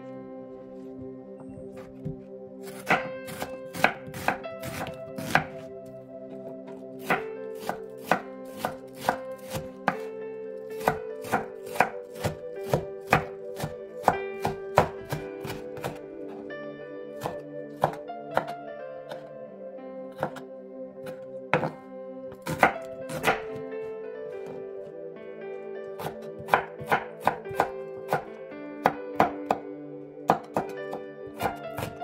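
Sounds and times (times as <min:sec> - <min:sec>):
background music: 0:00.0 - 0:32.0
knife chopping on wooden board: 0:01.8 - 0:05.7, 0:07.0 - 0:10.1, 0:10.8 - 0:16.4, 0:17.2 - 0:19.3, 0:20.2 - 0:20.4, 0:21.0 - 0:23.6, 0:26.0 - 0:29.6, 0:30.3 - 0:32.0.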